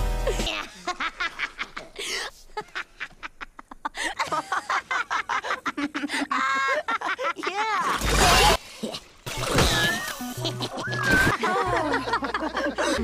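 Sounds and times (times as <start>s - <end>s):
cartoon character laughing: 9.7s - 12.4s.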